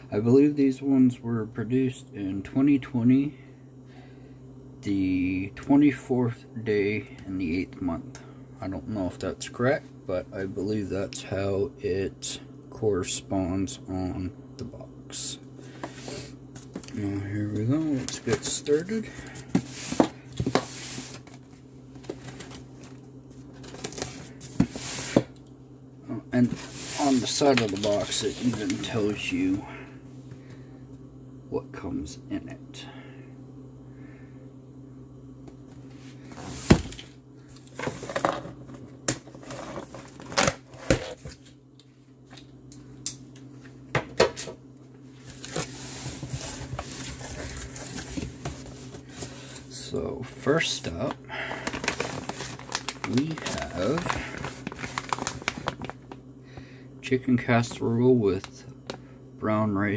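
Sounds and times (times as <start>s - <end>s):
cardboard flaps rustling: 51.6s - 55.9s.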